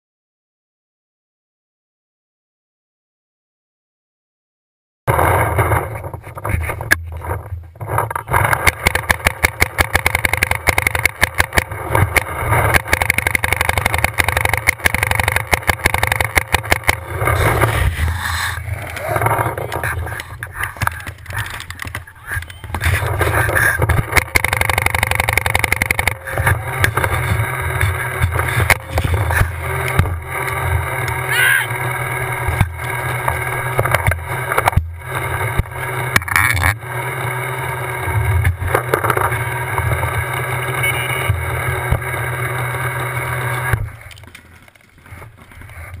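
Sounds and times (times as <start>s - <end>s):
paintball markers firing pops: 8.3s - 17.7s
steady low rumble: 11.5s - 35.9s.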